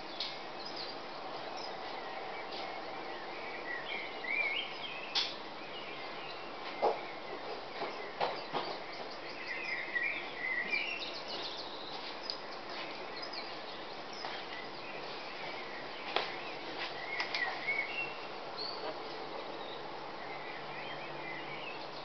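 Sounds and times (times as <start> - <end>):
songbirds singing: 0.0 - 22.0.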